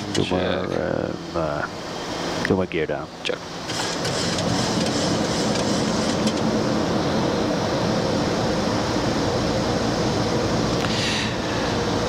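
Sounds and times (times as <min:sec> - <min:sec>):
cockpit air rumble and rush: 0:03.4 - 0:12.0.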